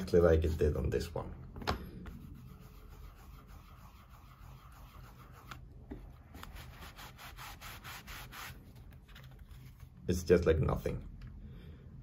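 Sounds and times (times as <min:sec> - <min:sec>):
cloth rubbing on leather: 0:02.1 - 0:05.6, 0:06.2 - 0:09.9.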